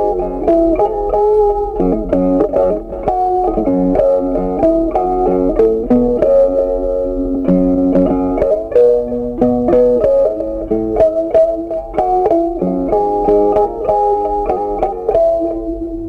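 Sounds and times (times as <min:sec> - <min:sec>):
plucked string melody: 0:00.0 - 0:16.0.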